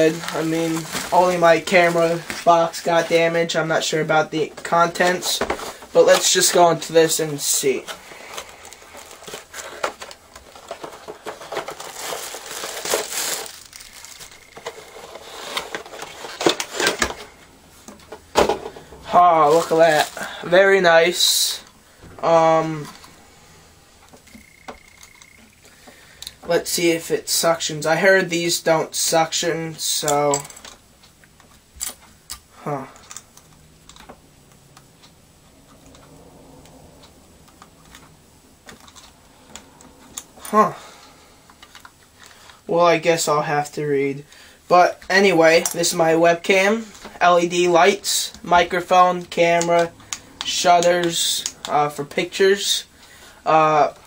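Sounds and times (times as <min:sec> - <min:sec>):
plastic bag crinkling: 0:00.0 - 0:03.9, 0:04.7 - 0:17.3, 0:19.1 - 0:21.4.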